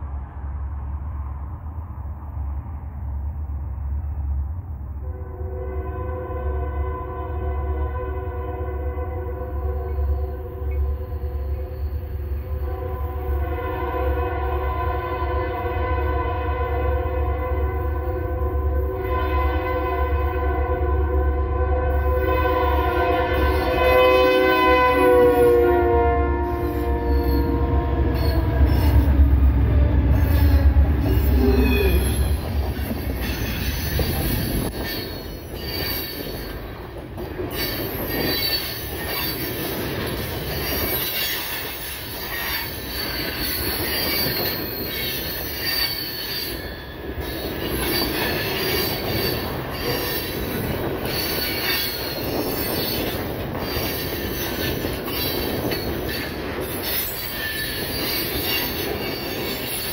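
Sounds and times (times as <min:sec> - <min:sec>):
diesel locomotive engines rumbling: 0:00.0 - 0:59.9
train wheels rolling: 0:22.6 - 0:59.9
high-pitched wheel squeals: 0:26.4 - 0:29.3, 0:30.1 - 0:36.6, 0:37.5 - 0:39.6, 0:40.6 - 0:59.9.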